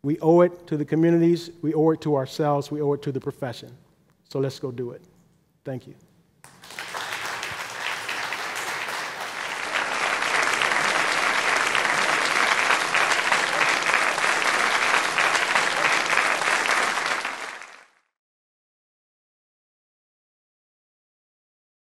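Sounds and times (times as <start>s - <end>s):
audience applauding: 6.5s - 18.1s.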